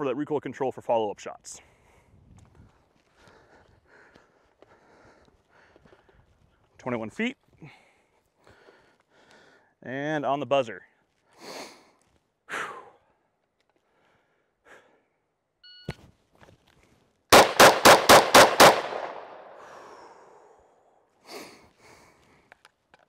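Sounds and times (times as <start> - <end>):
rapid pistol shots: 17.3 - 19.6.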